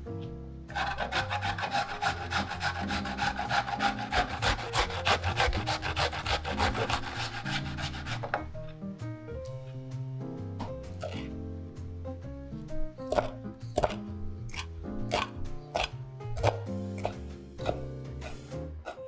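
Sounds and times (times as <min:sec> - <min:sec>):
cucumber grated on metal grater: 0:00.7 - 0:08.4.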